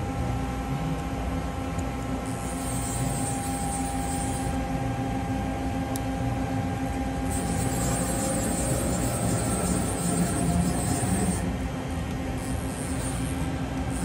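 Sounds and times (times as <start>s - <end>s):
lathe mechanical hum: 0.0s - 14.0s
held machine tones: 2.2s - 4.7s, 7.2s - 14.0s.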